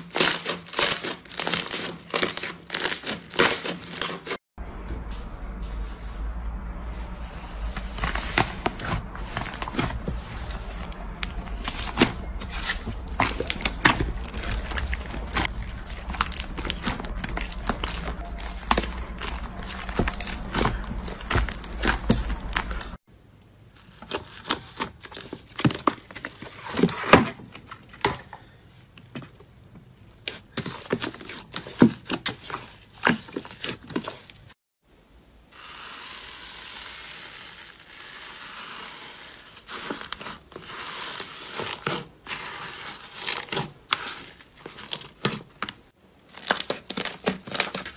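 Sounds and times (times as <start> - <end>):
hands kneading slime: 6.9 - 23.0.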